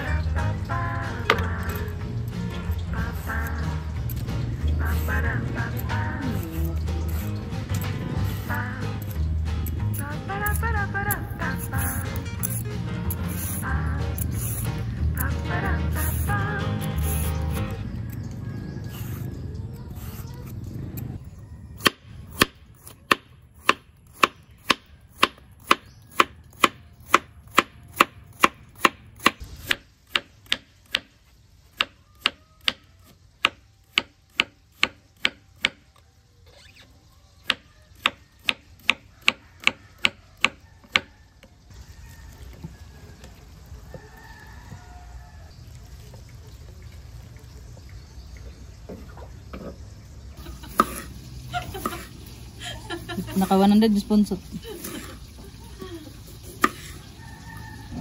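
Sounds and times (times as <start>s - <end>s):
knife chopping on cutting board: 50.7s - 51.1s, 56.5s - 57.0s.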